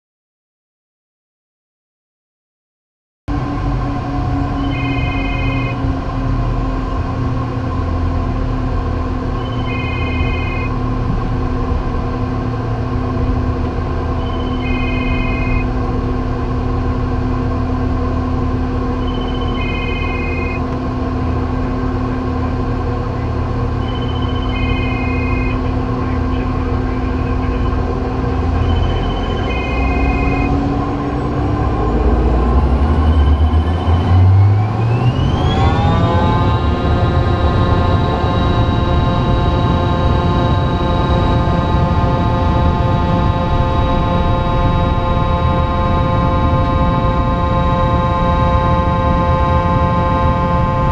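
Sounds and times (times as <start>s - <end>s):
jet engines whining: 3.3s - 50.9s
short electronic tone: 4.3s - 6.0s, 9.1s - 11.0s, 14.1s - 15.8s, 18.8s - 20.8s, 23.2s - 31.2s, 32.2s - 50.9s.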